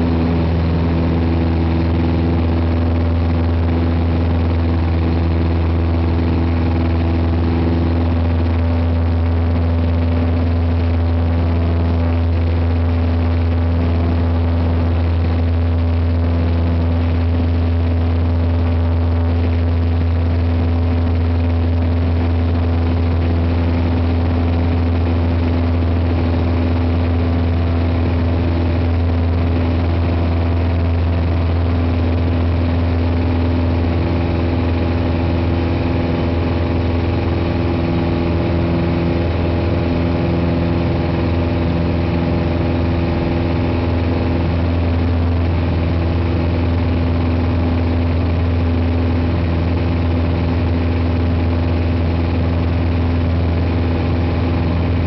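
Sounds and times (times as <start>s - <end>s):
airplane engine hum in cabin: 0.0s - 55.0s.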